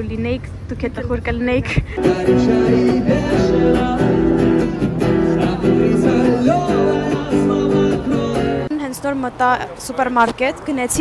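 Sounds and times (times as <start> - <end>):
person singing: 2.0 - 8.7
strummed acoustic guitar: 2.0 - 8.7.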